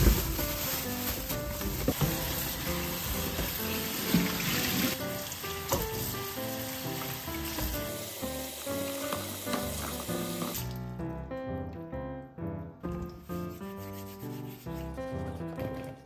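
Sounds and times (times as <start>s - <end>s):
hands rubbing vegetables: 0.0s - 5.0s, 13.2s - 16.0s
soft background music: 0.0s - 16.0s.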